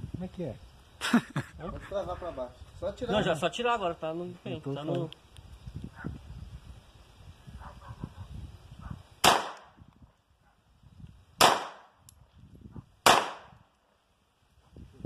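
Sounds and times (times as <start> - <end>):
pistol shots echoing: 9.2 - 9.7, 11.4 - 11.9, 13.0 - 13.5.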